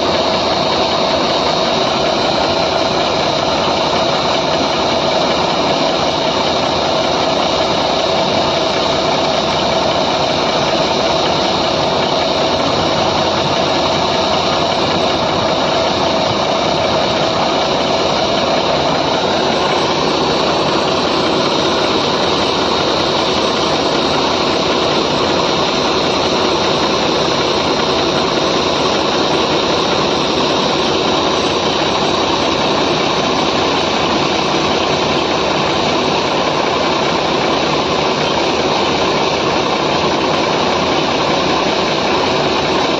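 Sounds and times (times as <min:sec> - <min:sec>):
diesel engine droning: 0:00.0 - 0:42.9.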